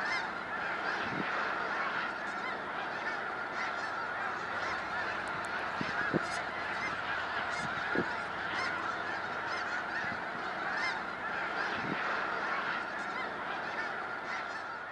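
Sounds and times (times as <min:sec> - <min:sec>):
geese honking: 0:00.0 - 0:14.9.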